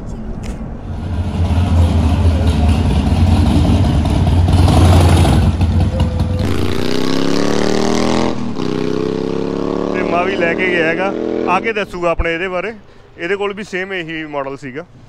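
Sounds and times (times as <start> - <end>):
motorcycle engine rumbling: 0.0 - 14.3.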